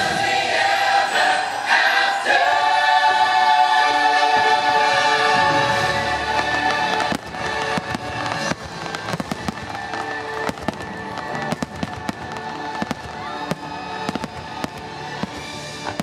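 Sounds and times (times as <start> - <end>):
show music: 0.0 - 16.0
fireworks bangs and cracks: 4.4 - 16.0.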